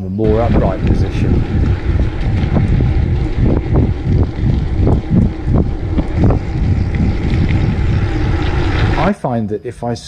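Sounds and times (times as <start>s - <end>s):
wind buffeting microphone: 0.2s - 9.2s
low rumble of bike ride: 0.2s - 9.9s.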